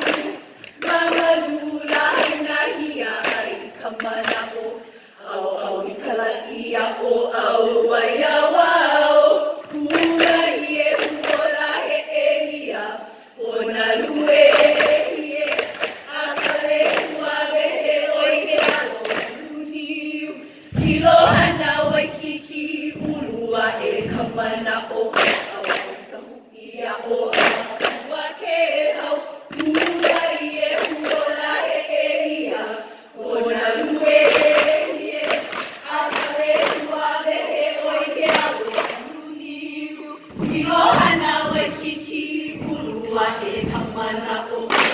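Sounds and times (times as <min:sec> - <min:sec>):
group chanting in unison: 0:00.0 - 0:44.9
deep thump: 0:20.7 - 0:22.3
gourd drums thumped and slapped: 0:20.7 - 0:22.3, 0:40.3 - 0:44.0.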